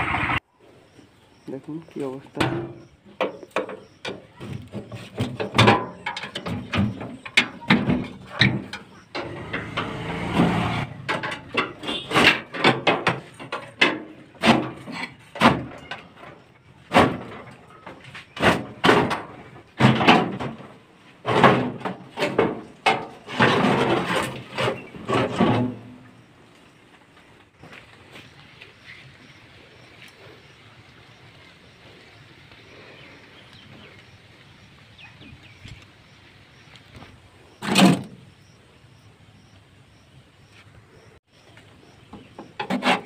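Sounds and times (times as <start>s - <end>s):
sheet metal knocks and clanks: 2.4s - 16.0s, 16.9s - 20.7s
metal scraping: 4.4s - 15.4s, 21.2s - 26.3s, 42.5s - 43.0s.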